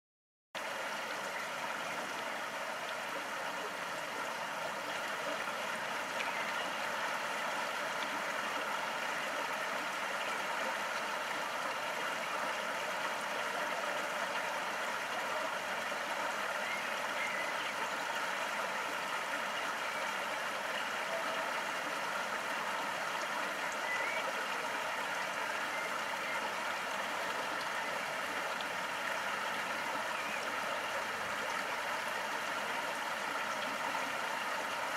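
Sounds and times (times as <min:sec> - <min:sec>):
stream running water: 0:00.6 - 0:34.9.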